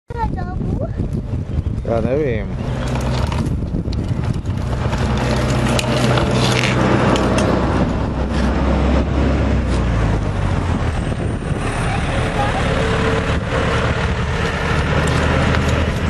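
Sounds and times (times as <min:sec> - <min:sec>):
steady low drone: 0:00.6 - 0:16.0
plastic wheels rolling on concrete: 0:02.4 - 0:08.9, 0:12.4 - 0:16.0.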